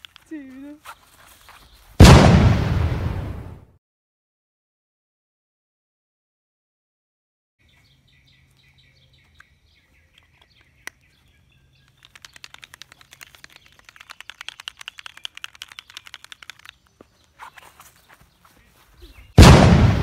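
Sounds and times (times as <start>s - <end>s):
faint bird calls: 7.7s - 19.4s
clicking chirps: 8.5s - 18.2s.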